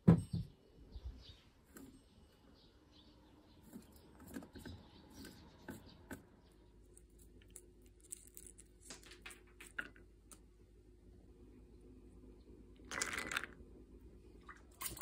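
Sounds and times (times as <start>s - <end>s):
faint low hum: 0.0s - 15.0s
almonds clicking into ceramic bowl: 7.0s - 10.4s, 12.9s - 13.6s.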